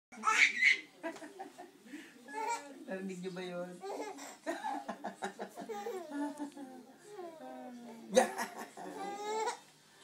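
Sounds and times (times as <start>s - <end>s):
baby giggling and babbling: 5.7s - 6.2s.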